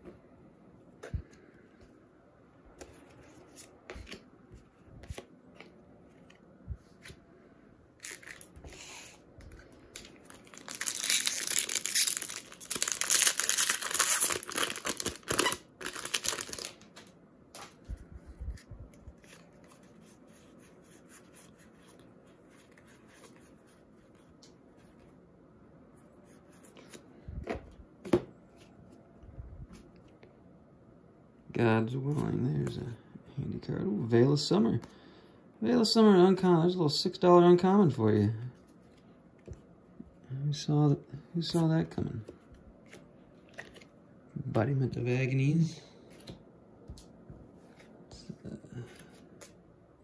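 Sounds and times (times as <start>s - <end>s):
foil wrapper crinkling and tearing: 10.3s - 17.1s.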